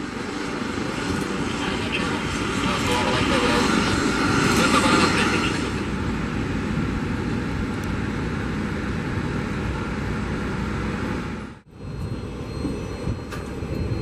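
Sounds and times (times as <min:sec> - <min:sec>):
helicopter engine and rotor: 0:00.0 - 0:14.0
jet airliner engine: 0:00.0 - 0:14.0.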